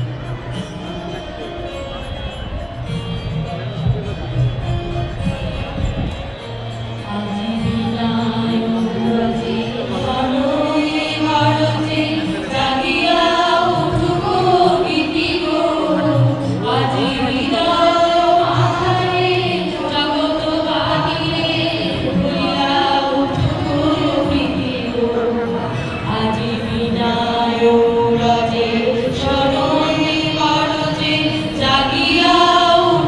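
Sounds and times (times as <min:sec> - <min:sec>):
choir singing: 0:07.1 - 0:33.0.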